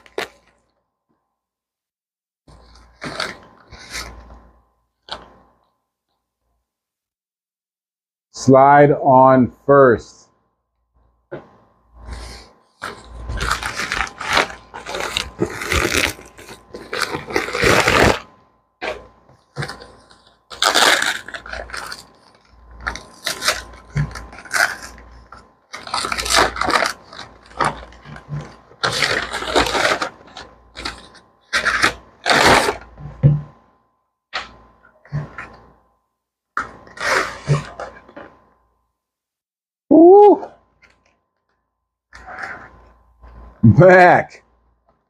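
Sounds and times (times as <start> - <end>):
plastic mailer crinkling: 12.8 - 32.9.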